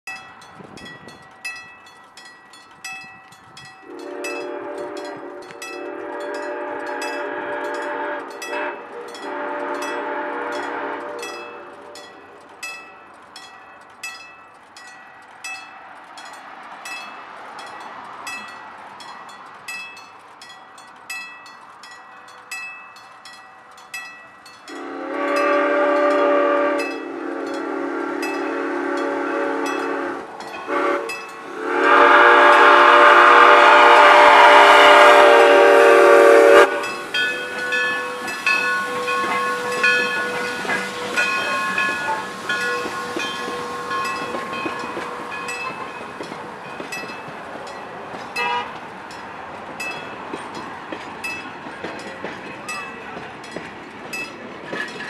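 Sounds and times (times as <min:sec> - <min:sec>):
bell ringing steadily: 0:00.1 - 0:26.2, 0:26.8 - 0:31.6, 0:36.6 - 0:50.6
steam whistle blasts: 0:03.8 - 0:12.2, 0:24.7 - 0:45.9, 0:48.4 - 0:48.7.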